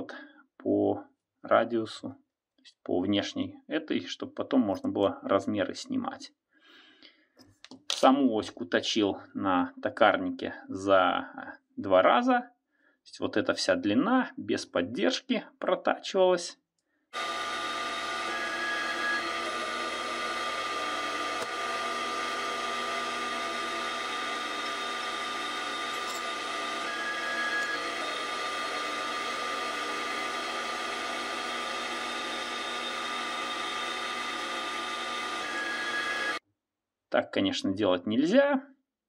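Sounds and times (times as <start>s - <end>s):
metal lathe whining: 17.2s - 36.4s.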